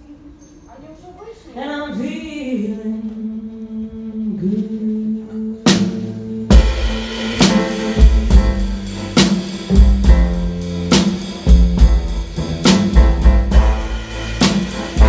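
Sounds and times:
woman singing: 0:01.6 - 0:06.8
jazz band playing: 0:05.6 - 0:15.0
drum and cymbal hit: 0:05.7 - 0:15.0.

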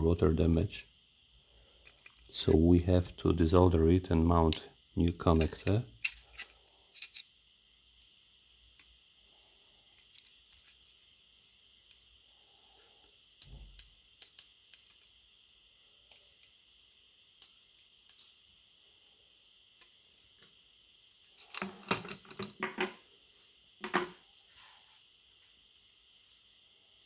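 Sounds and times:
tools set down on table: 0:21.5 - 0:23.0, 0:23.8 - 0:24.2.

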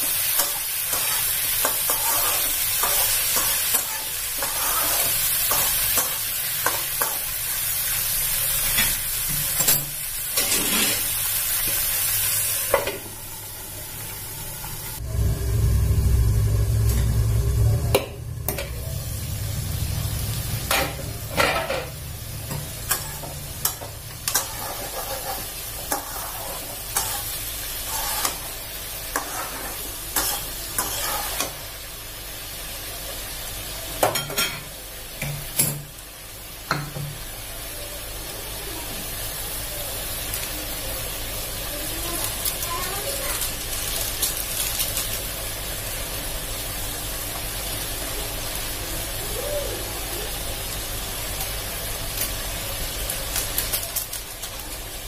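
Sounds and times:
food sizzling in hot oil: 0:00.0 - 0:55.0
spatula scraping a pan: 0:00.4 - 0:06.1, 0:10.4 - 0:11.8, 0:22.9 - 0:31.6
low rumble: 0:14.3 - 0:22.8.

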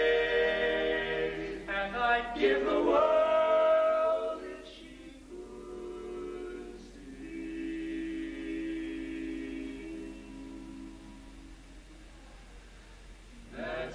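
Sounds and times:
men singing in close harmony: 0:00.0 - 0:10.9.

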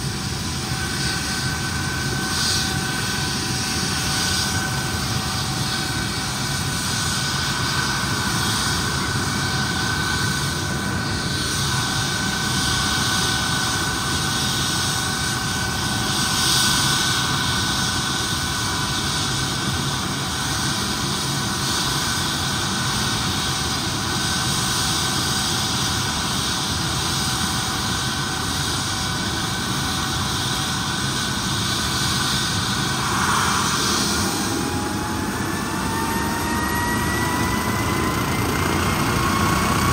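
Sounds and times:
helicopter rotor rushing: 0:00.0 - 0:39.9
helicopter turbine whine: 0:00.0 - 0:39.9.

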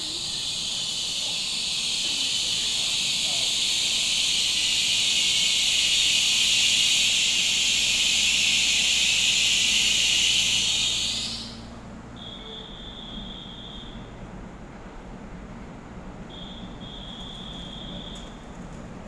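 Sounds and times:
steady high tone: 0:00.0 - 0:11.7
train brake hiss: 0:00.0 - 0:14.2, 0:16.2 - 0:18.5.

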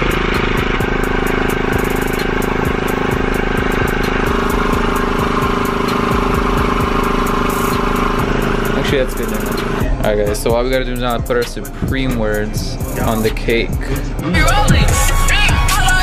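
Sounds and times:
airbrush compressor running: 0:00.0 - 0:16.0
airbrush spraying hiss: 0:00.8 - 0:09.8.

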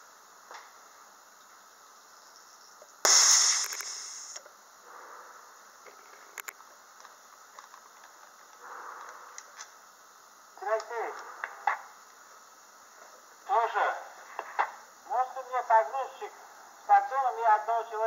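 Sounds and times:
loud hiss of released air: 0:03.1 - 0:04.4
sharp clicks: 0:03.1 - 0:04.4.

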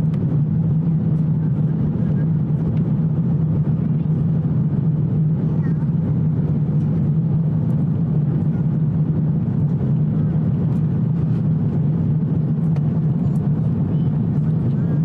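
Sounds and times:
aircraft cabin roar: 0:00.0 - 0:15.0
low hum: 0:00.0 - 0:15.0.

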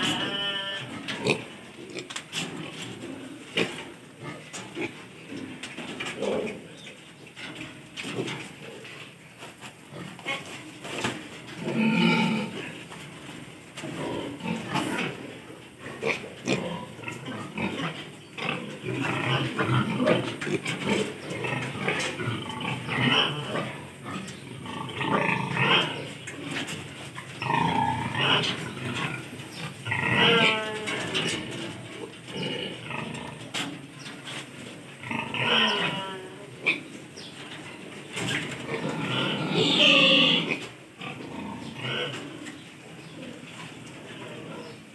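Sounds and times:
piglets squealing: 0:00.0 - 0:01.4, 0:39.4 - 0:40.6
piglets grunting: 0:00.0 - 0:05.4, 0:09.9 - 0:12.9, 0:13.9 - 0:26.8, 0:27.4 - 0:33.7, 0:35.0 - 0:37.0, 0:38.2 - 0:43.5.

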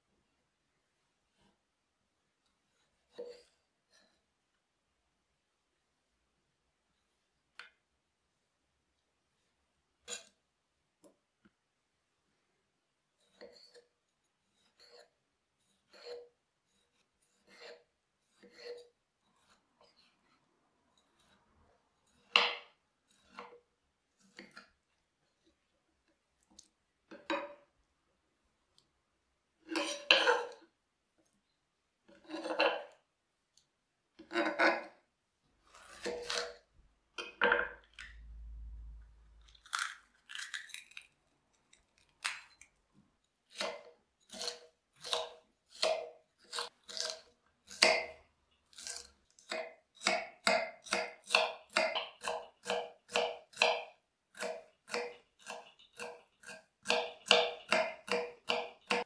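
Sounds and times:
knife scraping cutting board: 0:02.7 - 0:04.2, 0:13.2 - 0:20.4, 0:21.0 - 0:21.4, 0:22.0 - 0:23.6, 0:24.2 - 0:24.8, 0:29.6 - 0:30.7, 0:32.1 - 0:33.0, 0:34.2 - 0:35.0, 0:35.6 - 0:36.7, 0:43.5 - 0:48.1, 0:48.7 - 0:53.7, 0:54.4 - 0:59.0
knife chopping on wooden board: 0:43.5 - 0:48.2, 0:49.5 - 0:59.0.

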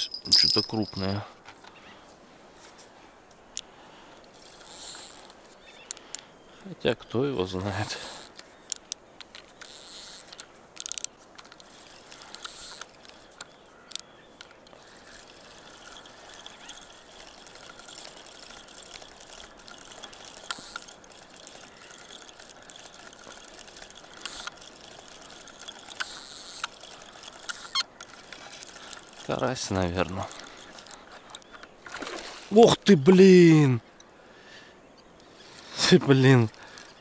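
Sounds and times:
fishing reel cranking: 0:04.3 - 0:06.2, 0:07.7 - 0:31.4.

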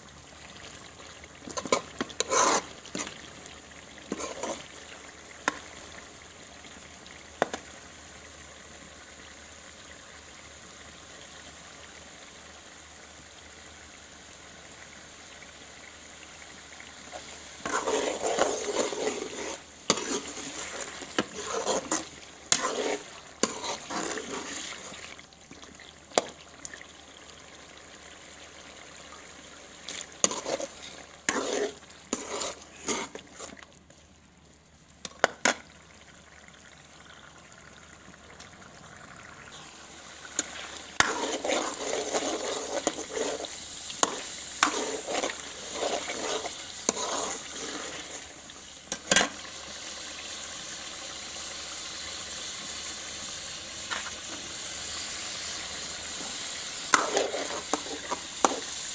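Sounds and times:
food sizzling in metal pot: 0:00.0 - 0:33.9, 0:34.7 - 0:58.9
metal spoon scraping pot: 0:01.5 - 0:03.1, 0:17.1 - 0:24.8, 0:30.2 - 0:33.6, 0:40.4 - 0:48.3, 0:56.9 - 0:58.8.

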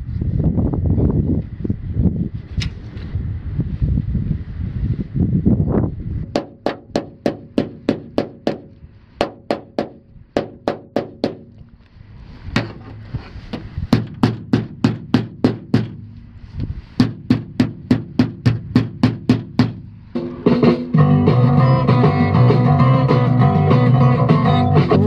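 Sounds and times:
hammering strikes: 0:06.4 - 0:11.5, 0:13.5 - 0:16.2, 0:17.0 - 0:21.0.

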